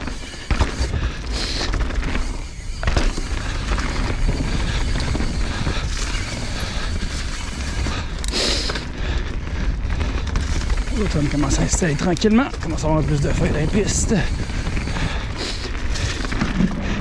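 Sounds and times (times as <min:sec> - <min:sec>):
bike rattling over rocks: 0:00.0 - 0:17.0
bike tyres rolling over dirt: 0:00.0 - 0:17.0
wind buffeting microphone: 0:08.9 - 0:17.0.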